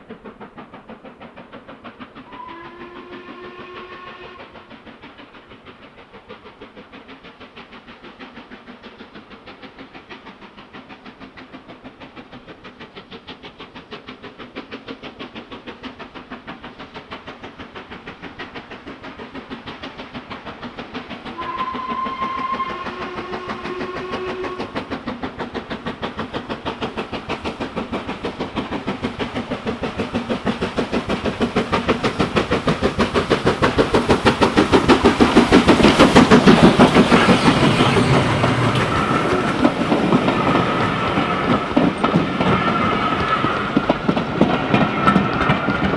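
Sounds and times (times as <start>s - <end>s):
steam locomotive exhaust beats: 0.0s - 45.9s
two-note train whistle: 2.3s - 4.7s, 21.4s - 24.9s.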